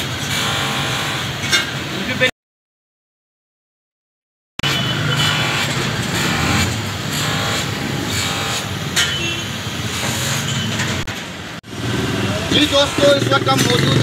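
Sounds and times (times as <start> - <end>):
passing traffic: 4.6 - 14.0.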